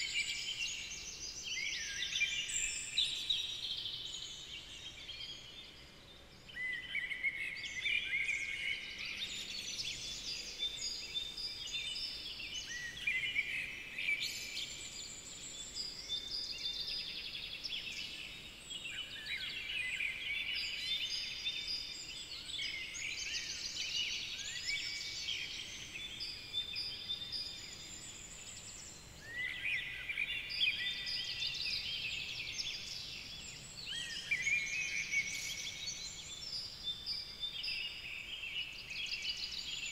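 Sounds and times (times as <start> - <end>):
songbirds chirping and trilling: 0.0 - 39.9.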